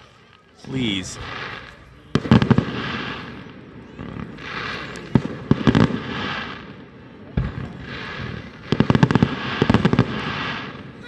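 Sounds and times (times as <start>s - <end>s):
fireworks bangs and pops: 0.0s - 11.0s.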